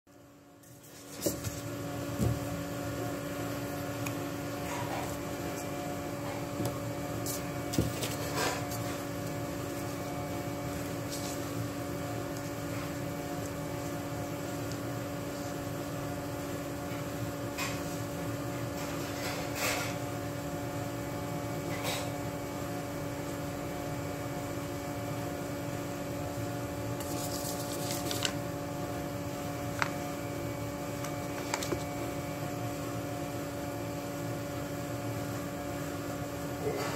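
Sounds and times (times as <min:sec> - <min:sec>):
steady hum: 0:00.1 - 0:19.4
paper rustling and tapping: 0:27.0 - 0:28.4, 0:31.0 - 0:32.0.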